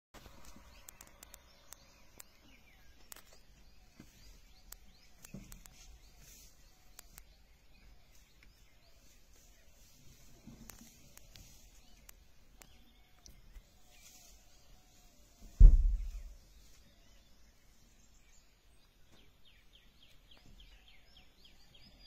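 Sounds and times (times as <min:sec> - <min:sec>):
sharp clicks: 0:00.4 - 0:02.3.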